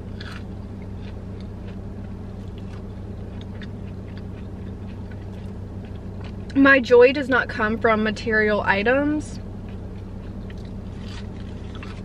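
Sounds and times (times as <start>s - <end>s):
crunchy chewing: 0.0s - 6.6s, 9.4s - 12.0s
low car cabin hum: 0.0s - 12.0s.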